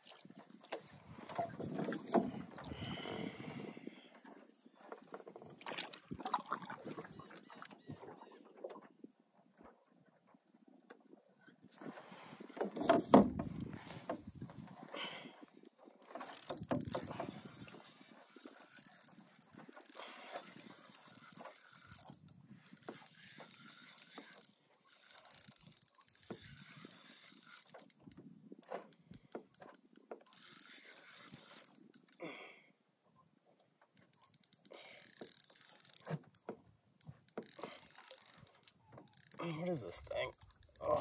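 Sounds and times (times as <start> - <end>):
fishing reel clicking: 16.0 - 32.4, 34.0 - 36.4, 37.0 - 41.0.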